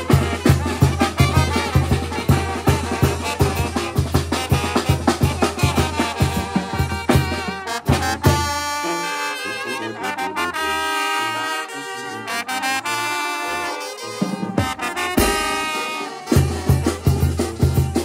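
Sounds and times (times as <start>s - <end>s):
bass drum and cymbals: 0.0s - 8.8s, 14.2s - 18.0s
brass band playing: 0.0s - 18.0s
tuba bass line: 0.0s - 18.0s
drum strikes: 14.4s - 18.0s.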